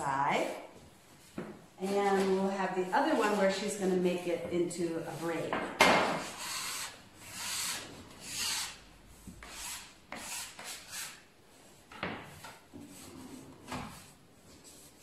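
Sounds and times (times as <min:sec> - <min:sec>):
hands rubbing bread dough: 0:12.8 - 0:15.0.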